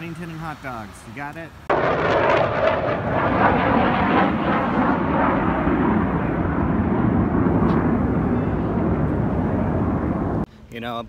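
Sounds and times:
jets passing low overhead: 1.6s - 10.5s.

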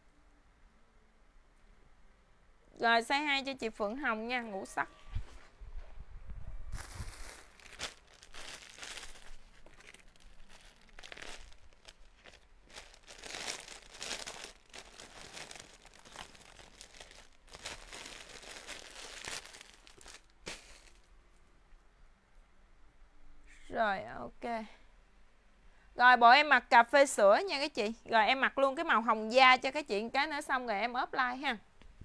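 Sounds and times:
plastic bag crinkling: 6.8s - 21.1s.

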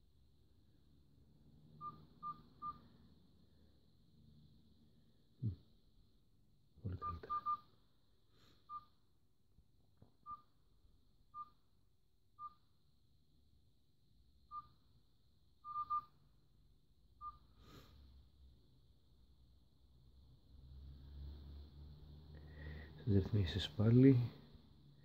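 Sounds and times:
smartwatch beeps: 1.8s - 2.8s, 7.0s - 7.6s, 8.7s - 8.9s, 10.2s - 10.5s, 11.3s - 11.6s, 12.4s - 12.6s, 14.5s - 14.8s, 15.6s - 16.1s, 17.2s - 17.5s.

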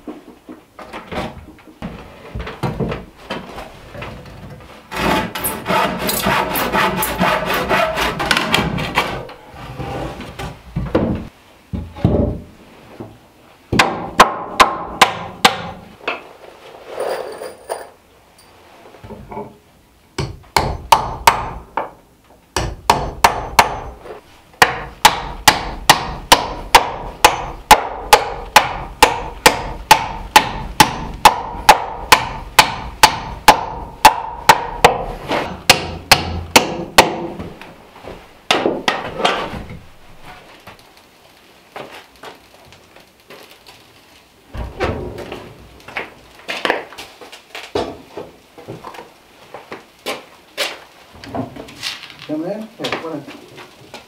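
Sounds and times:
hammer blows on wooden beam: 24.6s - 37.5s.

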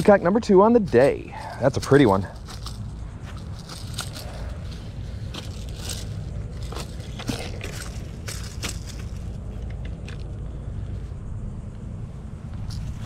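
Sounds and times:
steady low rumble: 0.0s - 13.0s
crunching in grass and dry leaves: 0.7s - 10.3s.

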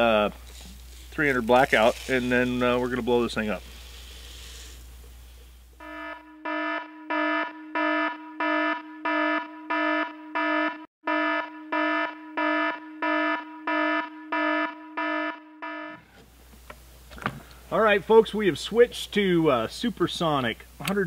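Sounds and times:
alarm buzzer beeping: 5.8s - 16.0s.

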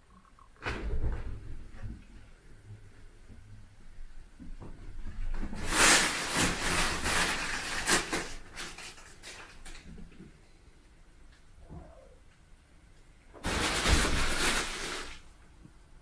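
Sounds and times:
fabric tunnel rustling: 5.1s - 9.5s, 13.4s - 15.3s.

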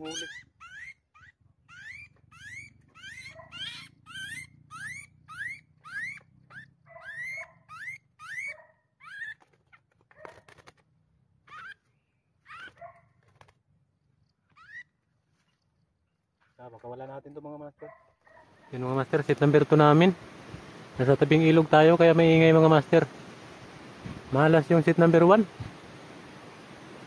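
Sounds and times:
small bird distress squeals: 0.0s - 10.6s, 11.4s - 13.5s, 14.4s - 15.6s.

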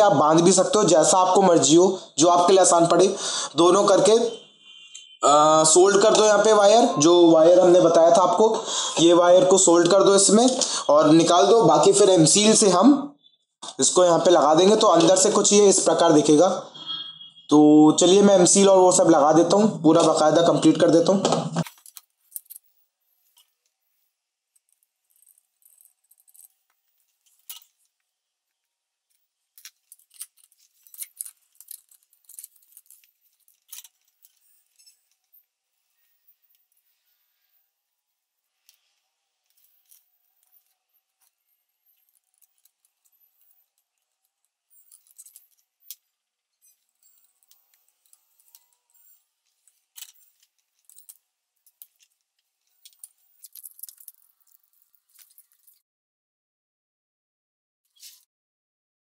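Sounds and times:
clicks of small metal parts: 21.6s - 22.7s, 24.6s - 28.1s, 29.1s - 35.5s, 38.7s - 55.8s.

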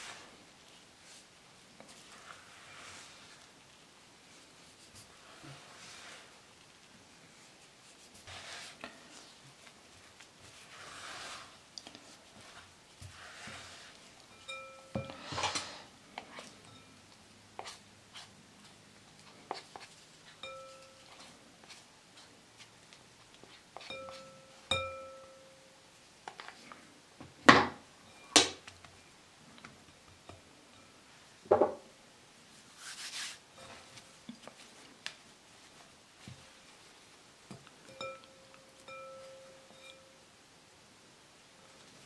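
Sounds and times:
spatula scraping glass bowl: 12.4s - 15.7s
glass bowl ringing: 14.3s - 15.2s, 20.4s - 21.0s, 23.9s - 25.7s, 37.9s - 40.2s.

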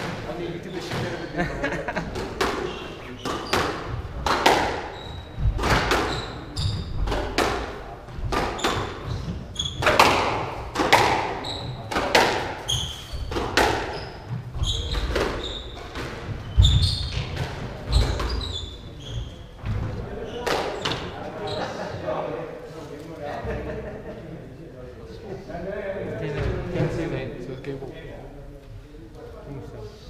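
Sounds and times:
squash ball hits: 2.1s - 9.1s, 9.7s - 14.0s
shoes squeaking on wooden floor: 2.1s - 22.0s.

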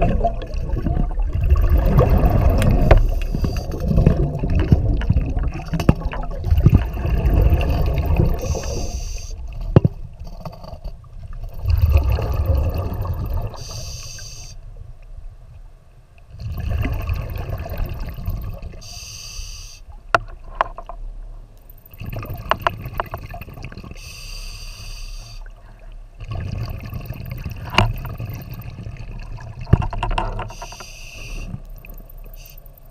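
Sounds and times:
bubbling exhaled air underwater: 0.0s - 10.6s, 11.3s - 14.4s, 16.3s - 19.0s, 21.9s - 24.4s, 25.2s - 32.5s
regulator inhale hiss: 8.4s - 9.4s, 13.6s - 14.6s, 18.8s - 19.9s, 24.0s - 25.5s, 30.5s - 31.6s.

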